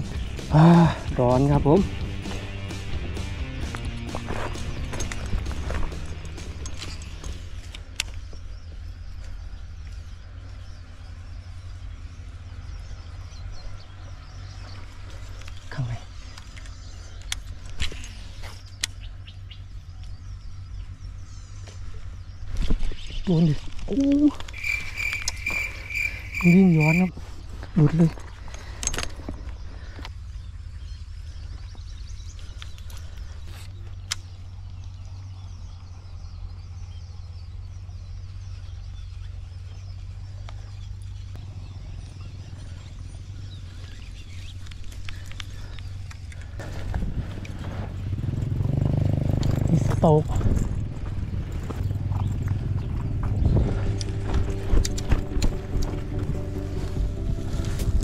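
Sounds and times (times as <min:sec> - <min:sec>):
low rumble: 0:00.0 - 0:15.3, 0:34.4 - 0:58.0.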